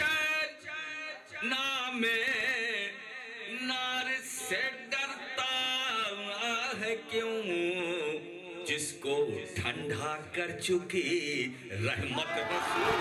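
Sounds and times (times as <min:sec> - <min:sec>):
man singing with vibrato: 0:00.0 - 0:10.2.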